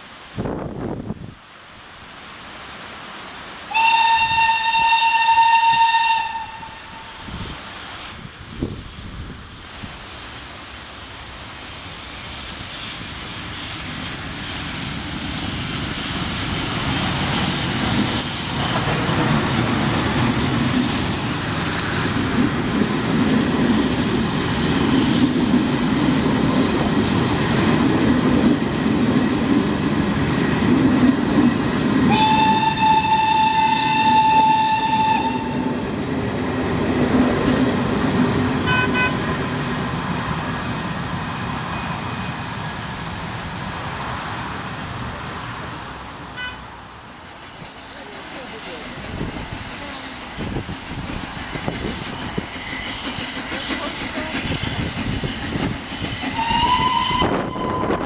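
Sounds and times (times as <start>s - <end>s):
train rumbling on rails: 0.0s - 58.0s
steam whistle blast: 3.6s - 7.4s, 32.1s - 35.8s, 38.6s - 39.2s, 56.3s - 58.0s.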